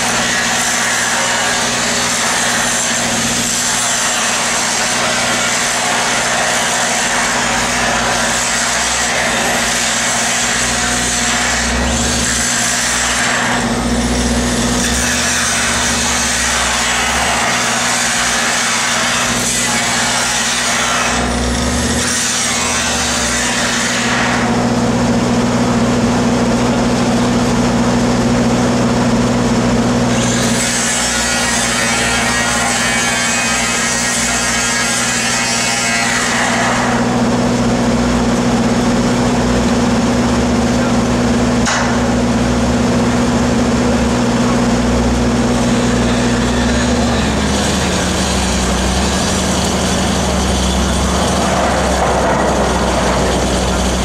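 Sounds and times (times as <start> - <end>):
angle grinder cutting steel: 0.0 - 25.4, 30.0 - 54.0
welding machine engine drone: 0.0 - 54.0.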